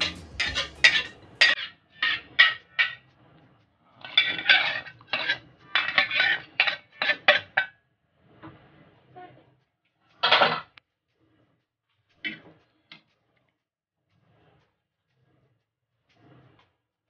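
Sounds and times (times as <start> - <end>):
utensil scraping metal pot: 0.0 - 1.6, 4.0 - 7.5.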